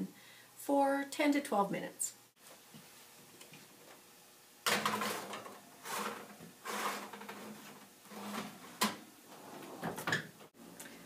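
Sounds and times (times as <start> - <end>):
oven rack scraping and rattling: 4.8 - 10.2.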